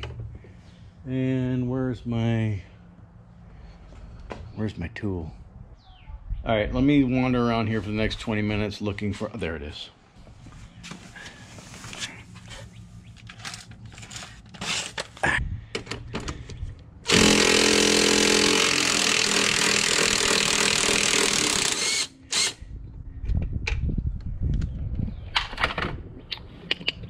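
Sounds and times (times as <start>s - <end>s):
cordless power tool running: 17.1s - 22.6s.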